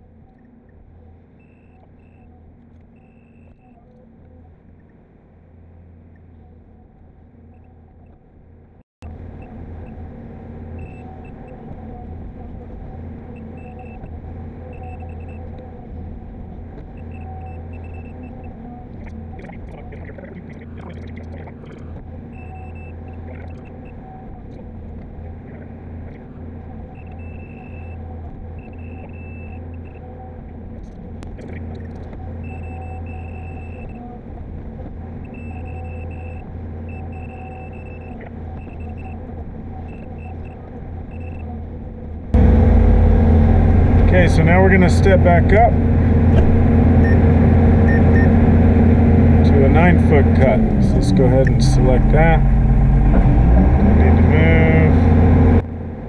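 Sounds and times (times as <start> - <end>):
high electronic beeps: 10.8 - 11.6, 13.4 - 14.1, 14.7 - 15.5, 17.0 - 24.0, 27.0 - 28.0, 28.6 - 30.0, 32.4 - 34.0, 35.3 - 39.2, 39.9 - 41.5, 47.0 - 48.4
excavator engine and hydraulics: 42.2 - 56.0.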